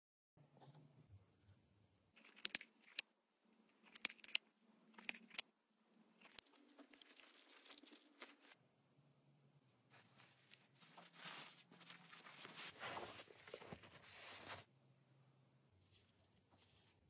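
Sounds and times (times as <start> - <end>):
faint handling clicks and crinkles: 0.4 - 8.8, 9.8 - 14.8
soft fabric rustle: 6.6 - 9.0, 9.6 - 14.8.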